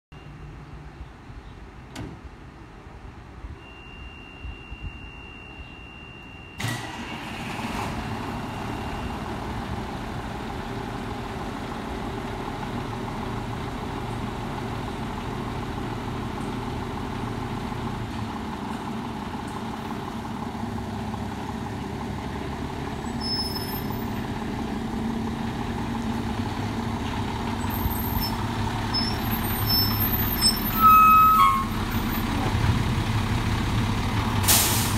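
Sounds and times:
faint high beeps: 0.1s - 0.6s, 3.6s - 6.7s
fire engine diesel engine: 0.2s - 34.9s.

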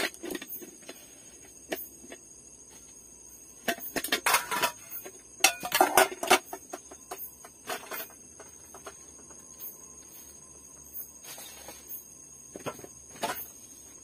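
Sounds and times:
metal pot and cup clattering: 3.6s - 8.9s.

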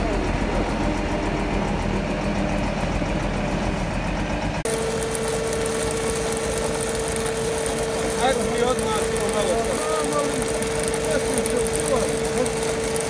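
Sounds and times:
heavy machine engine running: 0.0s - 13.0s
chain saw cutting stone: 4.7s - 13.0s.

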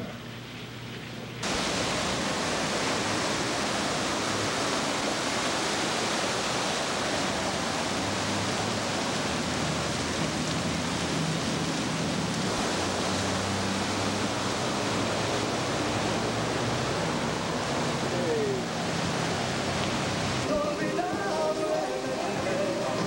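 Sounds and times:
torrential rain pouring: 0.0s - 23.0s.

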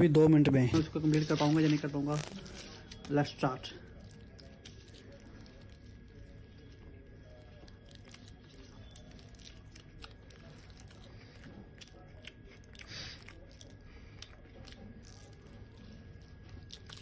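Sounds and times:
close-up chewing: 3.8s - 17.0s.

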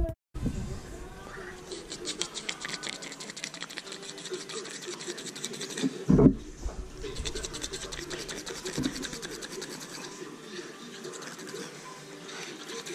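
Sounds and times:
hand scratching dog fur: 1.7s - 6.1s, 6.9s - 10.2s, 11.0s - 11.7s
loud low thump: 6.1s - 7.0s.

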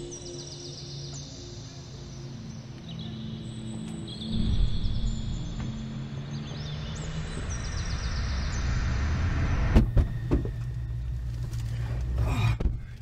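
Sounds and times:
low hum inside vehicle: 4.5s - 13.0s.

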